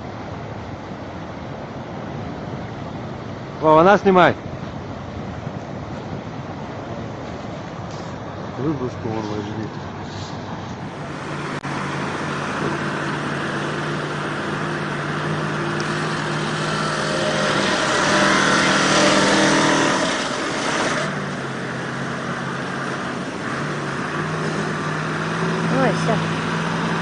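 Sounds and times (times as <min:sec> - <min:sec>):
churning water rushing: 0:00.0 - 0:27.0
truck engine running under load: 0:04.8 - 0:27.0.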